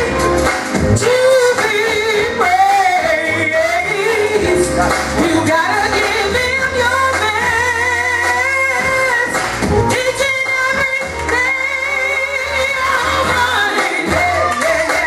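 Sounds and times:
steady bass: 0.0s - 15.0s
wavering vocal line: 0.0s - 15.0s.

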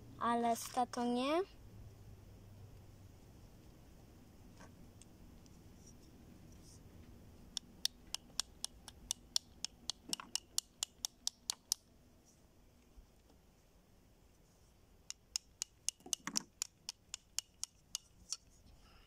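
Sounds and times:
sharp light clicks: 7.6s - 11.9s.

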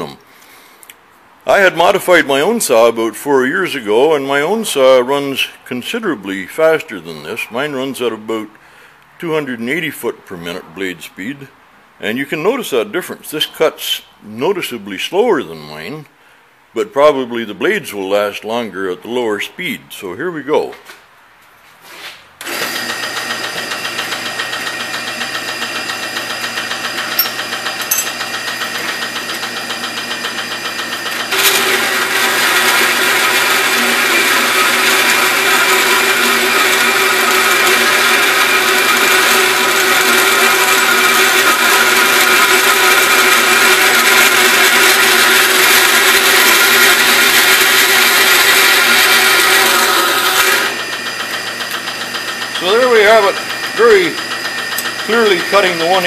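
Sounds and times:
bandsaw cutting steel: 22.4s - 56.0s
bandsaw mechanical whine: 22.4s - 56.0s.

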